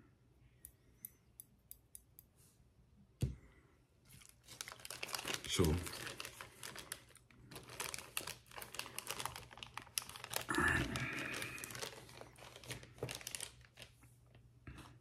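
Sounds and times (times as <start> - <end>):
plastic packaging crinkling: 4.1 - 14.4.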